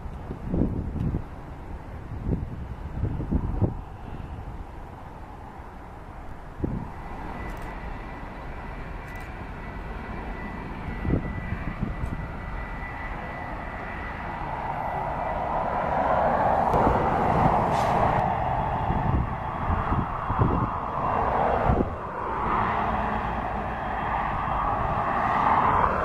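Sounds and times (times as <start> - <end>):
jet engines roaring: 0.0 - 26.0
high-pitched whine: 6.1 - 26.0.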